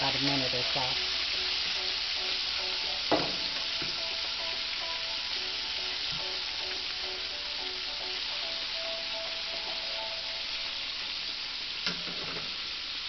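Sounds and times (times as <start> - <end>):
pork chop sizzling in oil: 0.0 - 13.0
sharp knock: 3.1 - 3.5.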